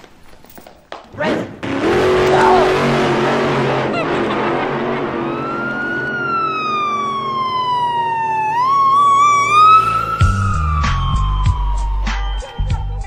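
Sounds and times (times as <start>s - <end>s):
police siren wailing: 1.9s - 13.0s
siren yelp: 2.2s - 2.8s, 5.0s - 13.0s
bass beat: 10.2s - 13.0s.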